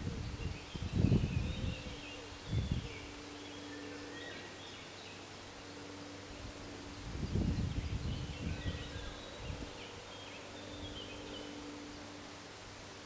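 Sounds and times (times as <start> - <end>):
wind buffeting microphone: 0.0 - 3.2, 6.4 - 10.0
birds chirping: 0.0 - 12.4.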